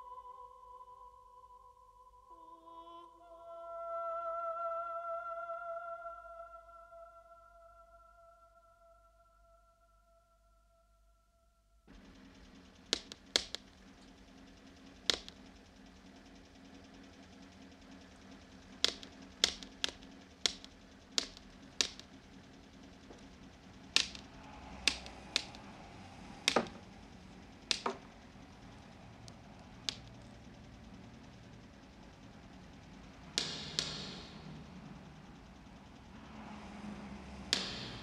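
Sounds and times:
faint hum: 0:00.0 - 0:38.0
cane tapping on pavement: 0:11.9 - 0:15.6, 0:18.7 - 0:23.3, 0:24.0 - 0:25.7, 0:26.4 - 0:26.8, 0:27.7 - 0:28.1.

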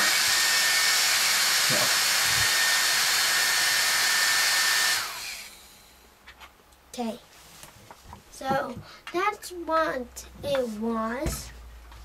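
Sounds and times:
small electric motor whining: 0:00.0 - 0:06.0.

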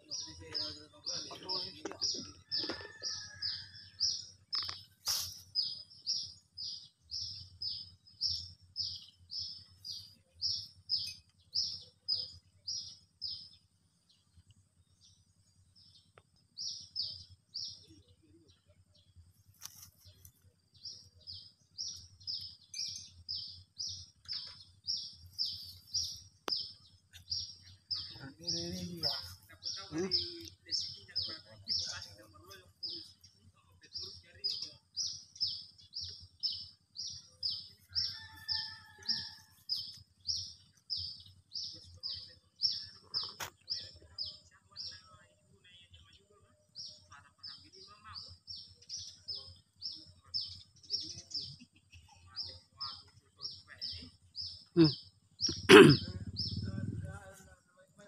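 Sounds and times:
brief low vocal sounds: 0:54.8 - 0:57.2.

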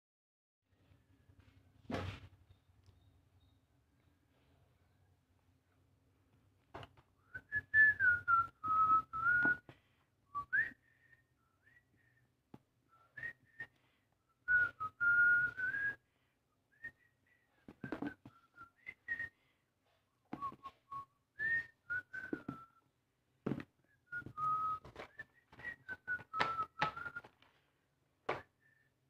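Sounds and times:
person whistling a tune: 0:07.2 - 0:09.7, 0:10.3 - 0:12.2, 0:12.9 - 0:13.8, 0:14.4 - 0:16.0, 0:16.7 - 0:19.4, 0:20.4 - 0:22.9, 0:23.8 - 0:27.4.

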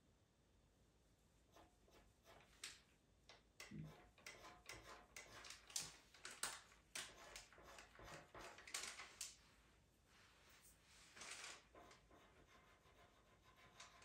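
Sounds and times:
pencil scratching on paper: 0:01.5 - 0:02.6, 0:03.7 - 0:05.8, 0:07.0 - 0:08.8, 0:11.5 - 0:14.0.

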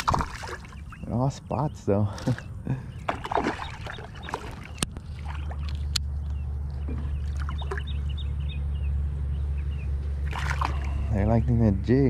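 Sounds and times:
fish splashing in water: 0:00.0 - 0:01.0, 0:02.3 - 0:06.0, 0:07.1 - 0:08.1, 0:10.2 - 0:11.2.

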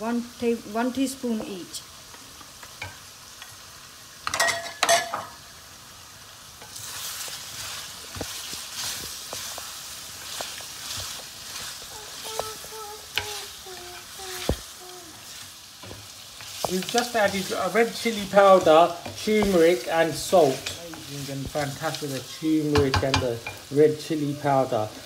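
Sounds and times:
food sizzling in hot oil: 0:00.0 - 0:25.0
wooden spoon stirring in pot: 0:06.5 - 0:23.8.

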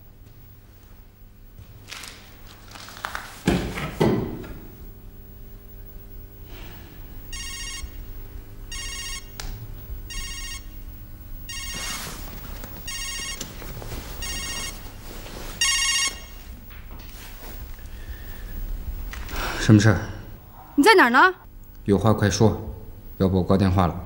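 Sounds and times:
trilling phone ringtone: 0:07.3 - 0:08.1, 0:08.7 - 0:09.4, 0:10.1 - 0:10.8, 0:11.5 - 0:16.5.

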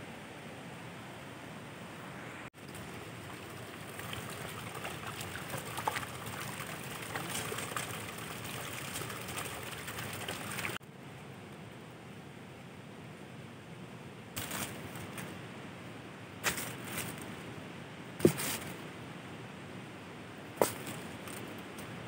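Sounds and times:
running water splashing: 0:02.6 - 0:10.8.

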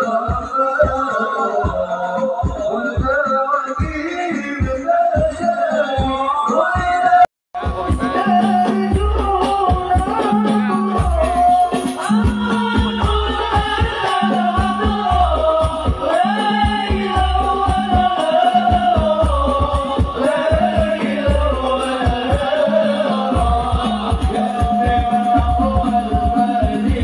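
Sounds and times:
hand drums: 0:00.0 - 0:27.0
person singing: 0:00.0 - 0:27.0
bass drum beat: 0:07.6 - 0:27.0.

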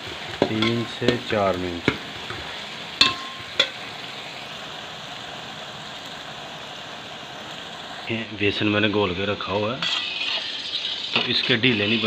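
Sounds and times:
onions sizzling in hot oil: 0:00.0 - 0:12.0
metal spoon knocking pot: 0:03.0 - 0:03.8.

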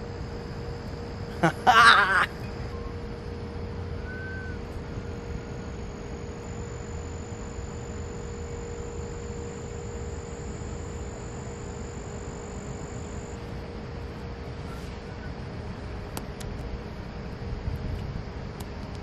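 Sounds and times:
constant hum: 0:00.0 - 0:19.0
high-pitched whine: 0:00.0 - 0:19.0.

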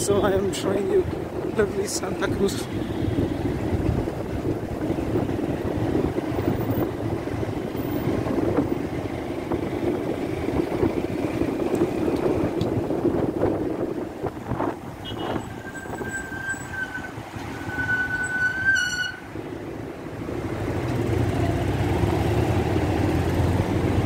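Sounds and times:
wind buffeting microphone: 0:00.0 - 0:17.9.

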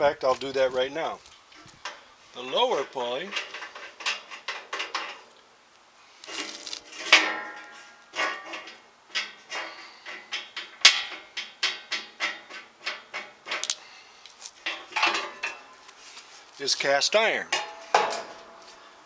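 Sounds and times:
metal clanks: 0:06.3 - 0:13.9, 0:14.6 - 0:15.8, 0:17.5 - 0:18.7.

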